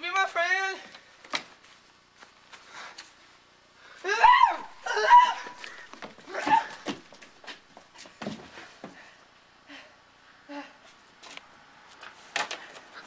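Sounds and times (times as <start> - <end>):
person squealing and giggling: 4.0 - 6.8.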